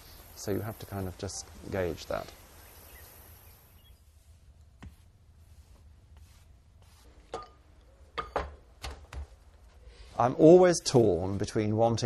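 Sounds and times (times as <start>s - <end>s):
paintbrush brushing: 3.3s - 7.6s.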